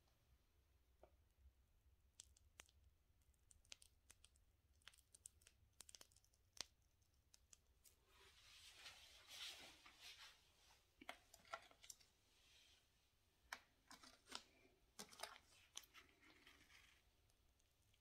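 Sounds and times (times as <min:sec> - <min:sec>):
soft rustle: 0:07.9 - 0:13.2.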